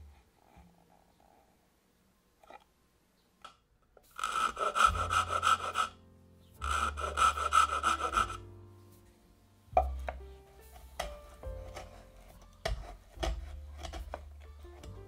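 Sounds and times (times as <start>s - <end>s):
blade scraping wood: 4.1s - 6.0s, 6.6s - 8.4s, 10.7s - 15.0s.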